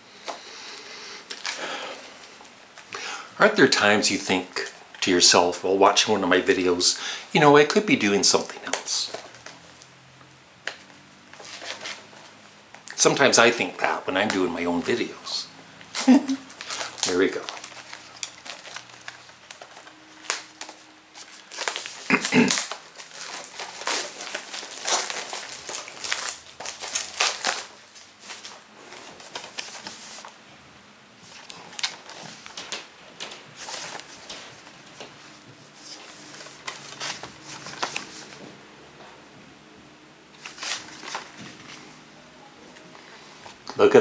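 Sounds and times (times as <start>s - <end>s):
cardboard package rustling: 1.3s - 2.9s, 8.2s - 9.9s, 10.6s - 30.4s, 31.2s - 38.4s, 40.4s - 42.0s
plastic shrink-wrap crinkling: 1.3s - 9.9s, 10.6s - 30.4s, 31.2s - 38.4s, 40.4s - 42.0s.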